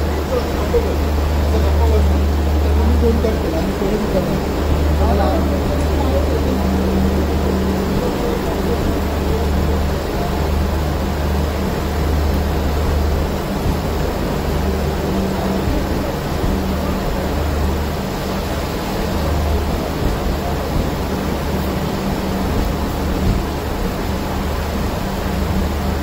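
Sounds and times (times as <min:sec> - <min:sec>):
low drone: 0:00.0 - 0:26.0
train equipment hum: 0:00.0 - 0:26.0.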